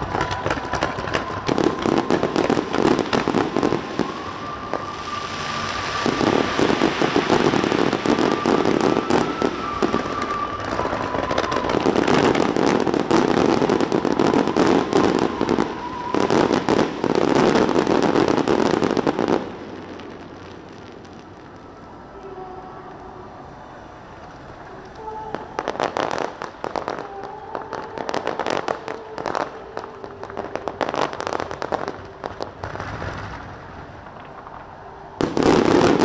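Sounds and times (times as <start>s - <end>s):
fireworks crackling and banging: 0.0s - 36.0s.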